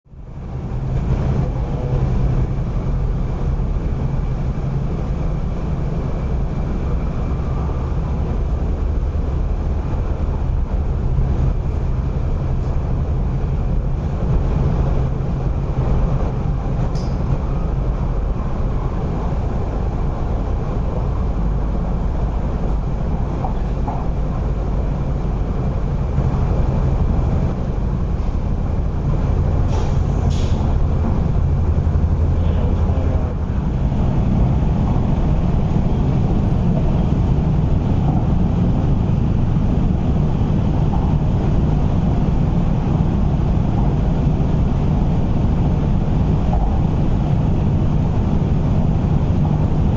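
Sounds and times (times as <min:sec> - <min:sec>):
train wheels rumbling on track: 0:00.1 - 0:49.9.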